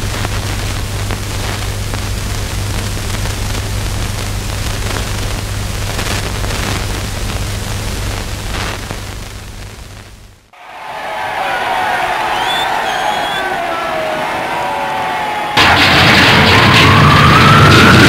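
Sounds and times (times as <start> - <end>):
faint crackles: 0.0 - 10.3.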